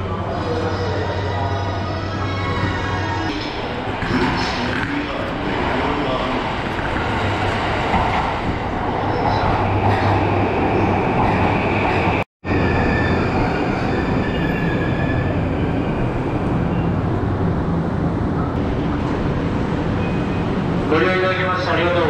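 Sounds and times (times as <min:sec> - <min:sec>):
train slowing to a stop: 0:00.0 - 0:20.9.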